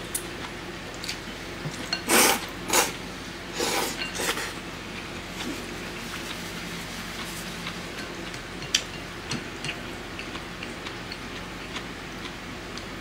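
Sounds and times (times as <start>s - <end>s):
chewing rice ball: 3.6s - 13.0s.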